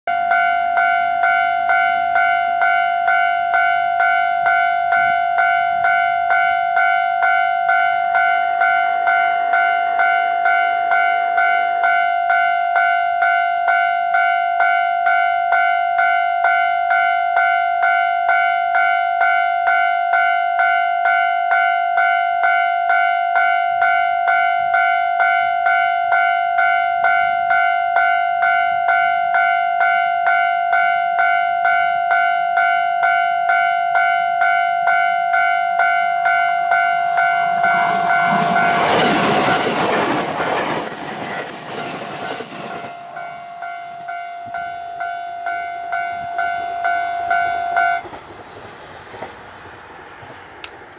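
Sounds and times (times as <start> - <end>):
level-crossing warning bell: 0.1 - 48.1
train wheel clatter: 36.7 - 44.7, 48.0 - 50.9.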